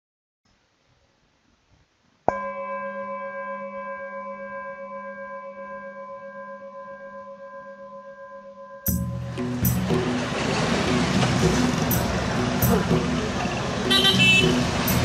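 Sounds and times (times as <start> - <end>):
singing bowl ringing: 2.3 - 9.2.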